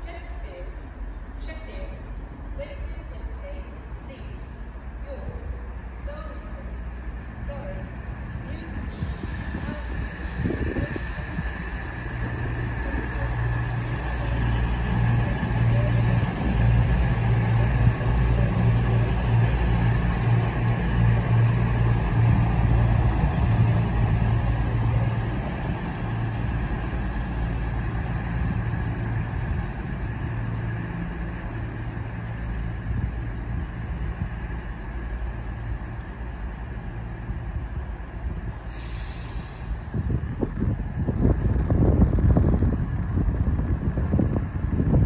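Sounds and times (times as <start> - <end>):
train diesel engines droning: 0.0 - 45.0
air hiss: 38.6 - 39.8.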